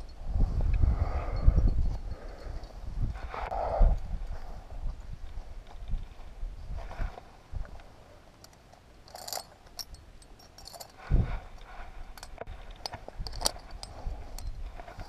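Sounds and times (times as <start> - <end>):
metal climbing gear clinking: 1.2 - 3.4, 7.6 - 15.0.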